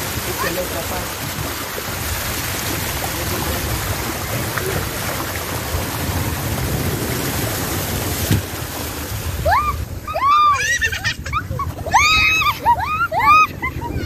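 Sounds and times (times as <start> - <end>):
water rushing down a slide: 0.0 - 14.0.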